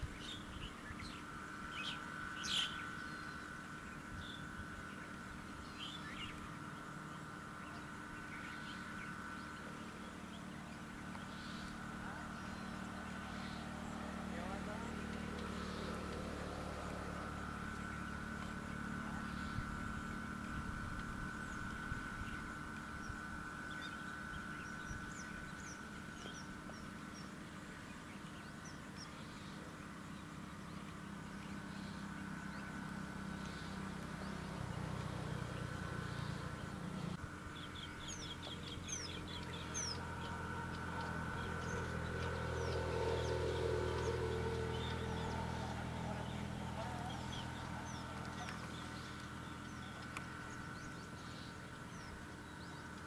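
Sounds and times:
low rumble: 0:00.0 - 0:53.0
lower bird call: 0:00.0 - 0:53.0
small birds chirping: 0:00.0 - 0:53.0
bird call trill: 0:00.1 - 0:06.6.

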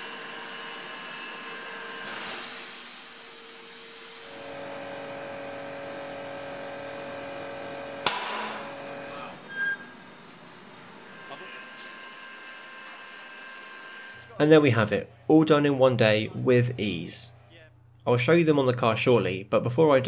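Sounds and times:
air line humming: 0:00.0 - 0:18.0
air hissing: 0:02.0 - 0:04.6.

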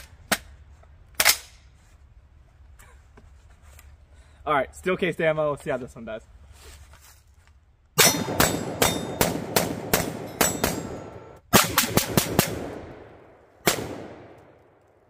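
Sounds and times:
rifle shots: 0:08.0 - 0:14.8.

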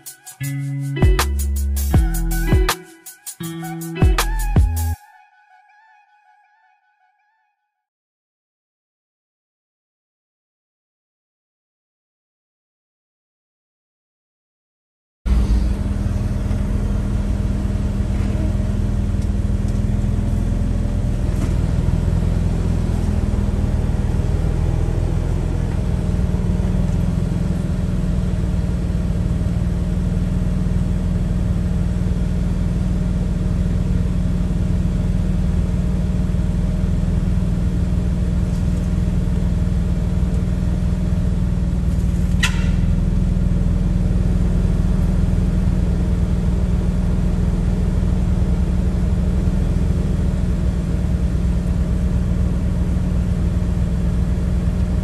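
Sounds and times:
car engine running: 0:15.3 - 0:55.0.

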